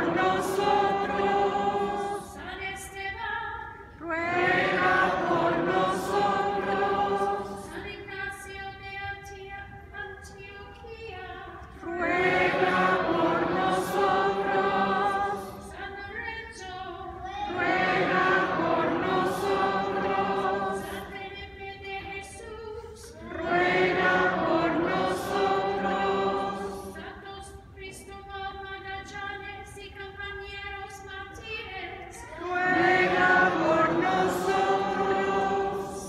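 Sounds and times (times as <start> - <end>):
congregation singing in unison: 0.0 - 8.5, 11.2 - 27.6, 32.1 - 36.0.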